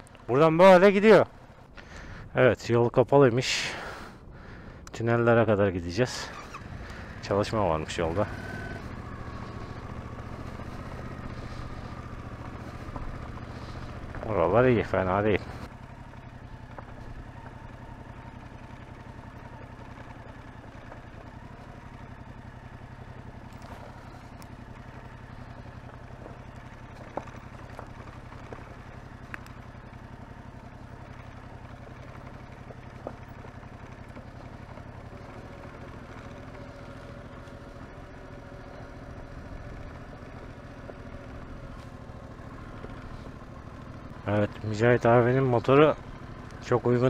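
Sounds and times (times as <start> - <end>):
motorcycle engine running: 0.0 - 2.3, 3.6 - 47.0.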